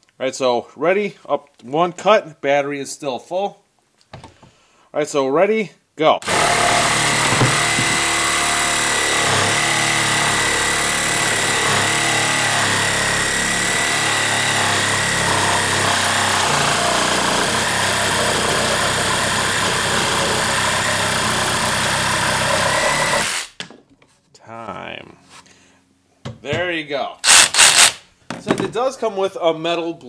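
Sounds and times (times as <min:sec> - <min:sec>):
reciprocating saw cutting wood: 0:06.2 - 0:23.6, 0:27.2 - 0:28.0.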